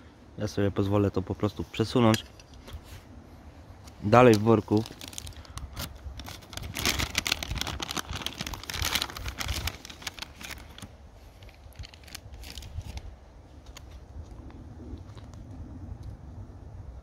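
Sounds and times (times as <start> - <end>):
plastic packaging crinkling: 4.3 - 13.0.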